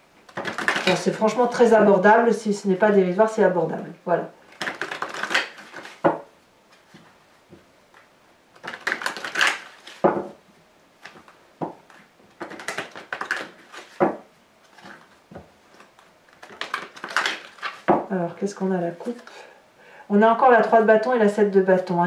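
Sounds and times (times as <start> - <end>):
cards being shuffled: 0.3 - 1.1, 4.5 - 7.2, 7.9 - 10.3, 11.0 - 18.0, 19.0 - 19.4.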